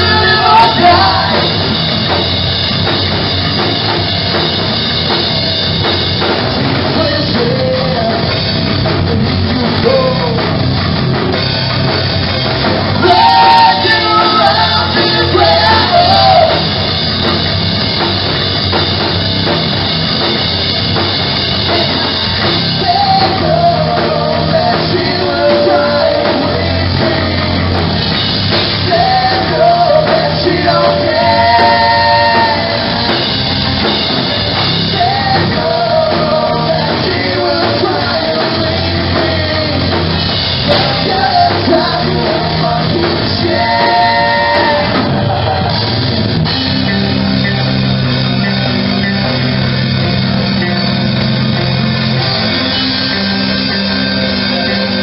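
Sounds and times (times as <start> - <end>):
man shouted singing: 0.0 - 1.6, 13.0 - 16.7, 28.8 - 33.6, 40.6 - 46.0
rock band playing: 0.0 - 55.0.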